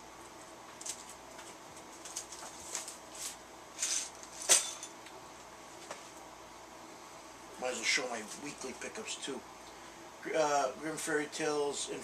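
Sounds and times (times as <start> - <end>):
comic books rustling: 0.8 - 4.5.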